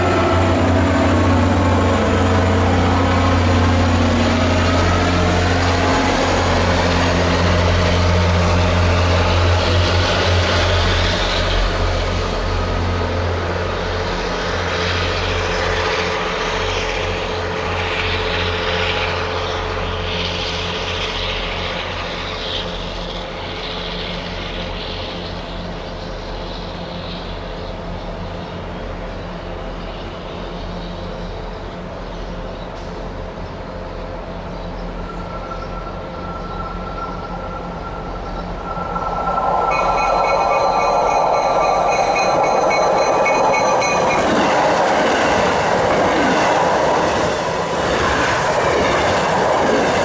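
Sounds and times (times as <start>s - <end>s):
diesel locomotive engine drone: 0.0s - 50.0s
train coaches clattering: 34.8s - 50.0s.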